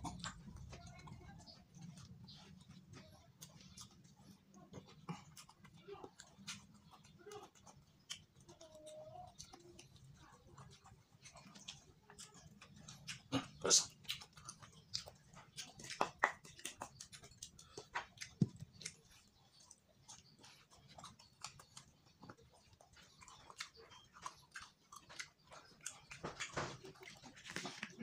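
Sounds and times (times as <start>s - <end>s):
man chewing and lip smacking: 0.0s - 28.0s.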